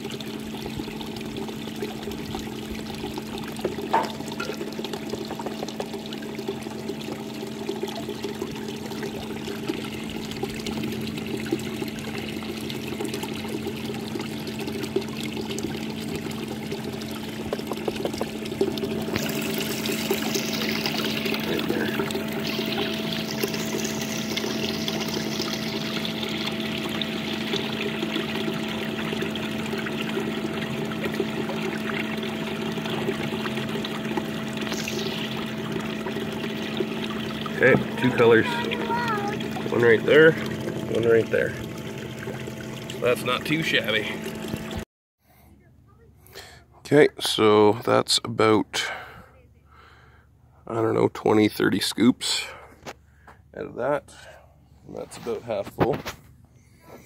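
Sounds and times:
water sloshing in a pan: 0.0 - 44.8
steady low hum: 0.0 - 57.0.

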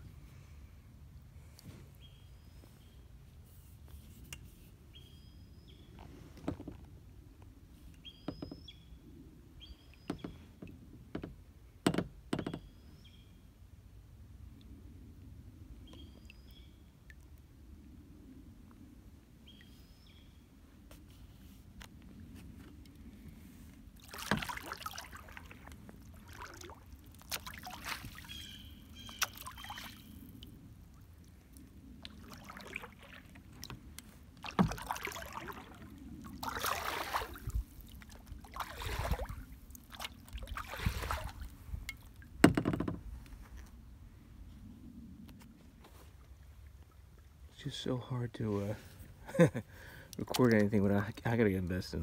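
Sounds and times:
paddle splashing in water: 24.0 - 31.3, 32.0 - 43.2.

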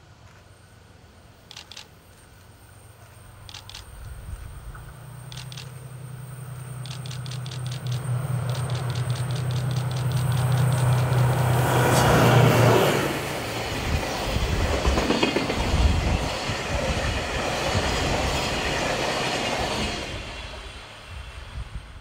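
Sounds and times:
locomotive engine hum: 0.0 - 22.0
tank wagons clattering on rails: 6.8 - 11.3.

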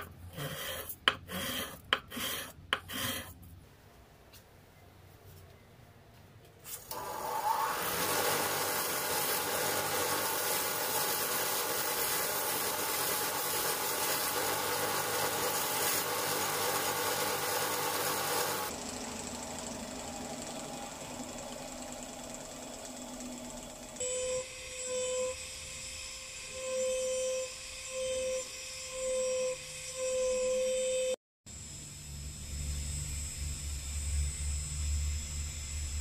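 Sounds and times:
metal rasping on grinder belt: 0.0 - 3.4, 7.2 - 18.7
belt grinder motor hum: 6.9 - 24.0.

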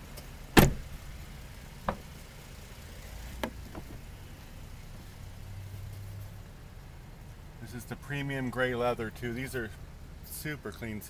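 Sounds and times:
low steady rumble: 0.0 - 11.0
car door latch clicks: 0.6 - 0.9, 3.4 - 4.1.

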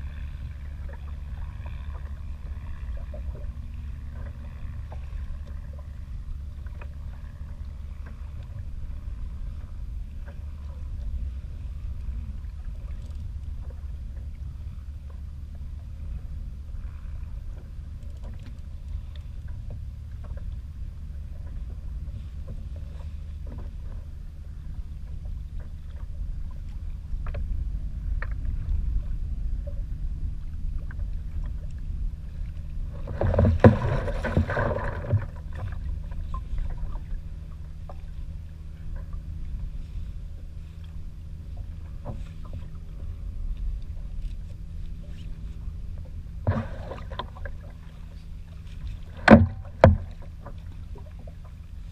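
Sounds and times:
choppy water around a kayak: 0.0 - 51.9
wind: 0.0 - 51.9
faint ticks: 16.8 - 20.6.

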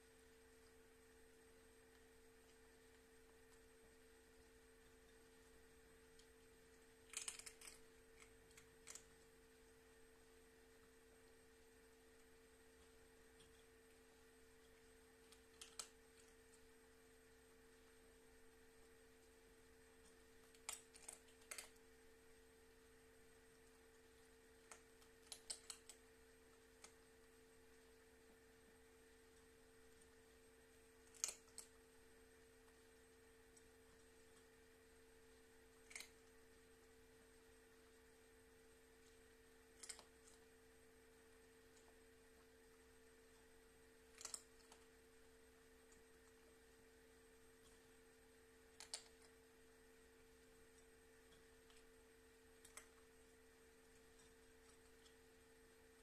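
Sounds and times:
faint steady hum: 0.0 - 56.0
soft clicks: 48.7 - 49.4.

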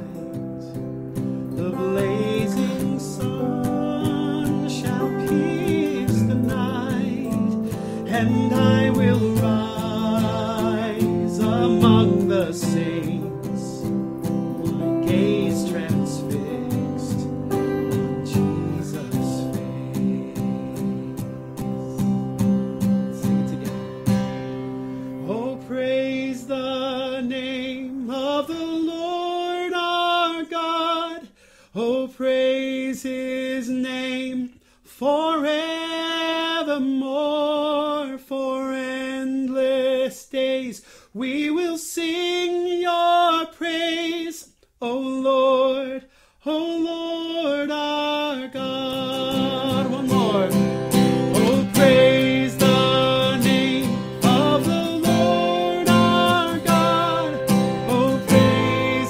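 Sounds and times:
person singing with vibrato: 0.0 - 22.4, 23.0 - 59.0
acoustic guitar strumming: 0.0 - 27.9, 48.6 - 59.0.

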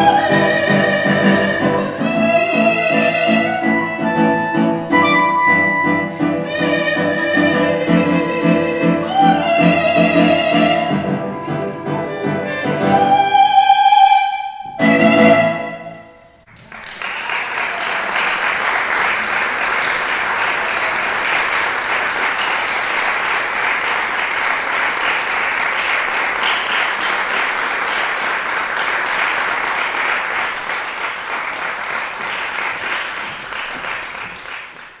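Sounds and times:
audience applauding: 16.4 - 35.0.

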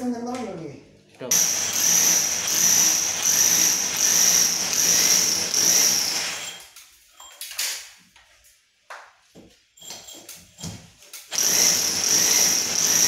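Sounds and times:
rotary hammer grinding into wall: 1.4 - 6.6, 11.4 - 13.0.

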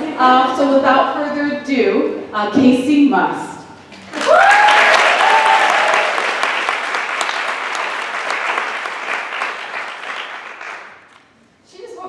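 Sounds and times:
audience applauding: 3.9 - 11.3
high cheer: 4.0 - 11.0.

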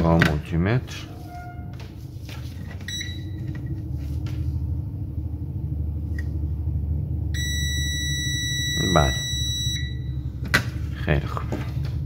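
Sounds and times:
low rumble: 0.8 - 12.0
multimeter beeping: 2.9 - 3.6, 7.4 - 10.2.

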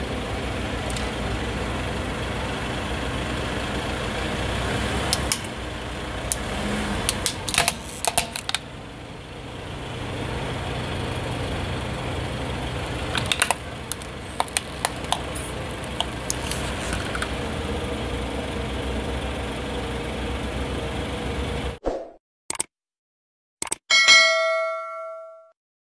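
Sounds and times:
car engine rumble: 0.0 - 21.8
tyre crushing plastic toy: 7.1 - 8.6, 13.2 - 17.4.

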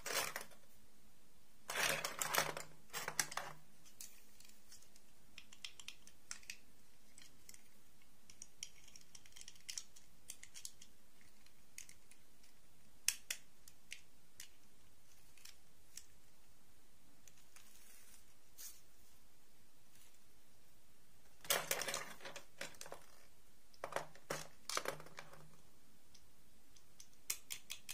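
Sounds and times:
small plastic clicks and taps: 2.5 - 14.6, 21.4 - 27.9.

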